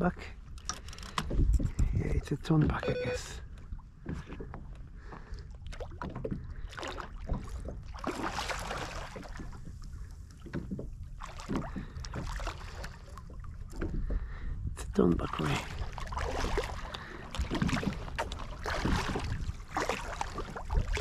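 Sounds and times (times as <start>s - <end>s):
low rumble of wind and water: 0.0s - 21.0s
fish splashing and thrashing: 3.6s - 14.4s, 15.3s - 21.0s.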